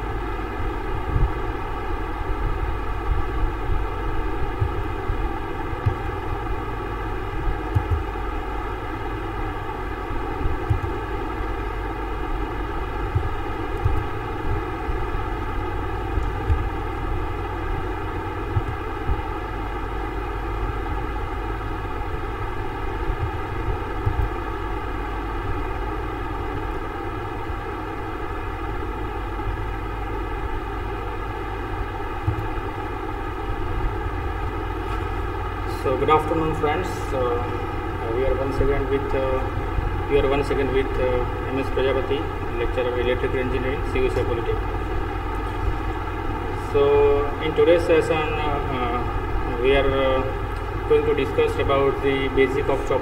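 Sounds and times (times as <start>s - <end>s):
low thumps: 4.4s - 5.2s, 5.8s - 6.5s, 7.4s - 8.1s, 16.1s - 17.2s.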